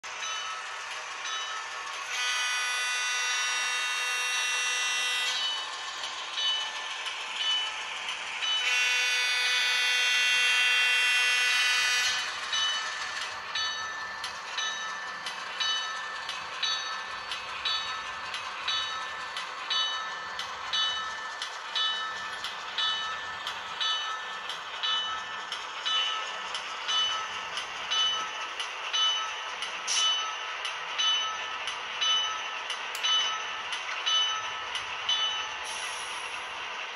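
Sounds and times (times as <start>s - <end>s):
locomotive bell ringing: 0.1s - 36.5s
model locomotive horn blasts: 2.1s - 5.4s, 8.6s - 12.3s.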